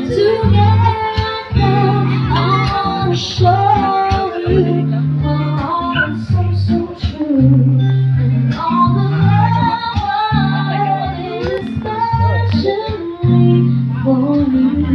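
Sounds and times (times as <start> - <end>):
guitar: 0.0 - 14.9
woman singing: 0.0 - 14.9
long held bass notes: 4.5 - 9.7.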